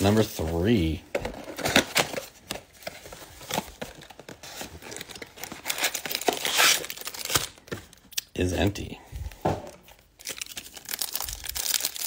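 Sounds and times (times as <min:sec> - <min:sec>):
foil packs rustling: 0:10.2 - 0:12.0.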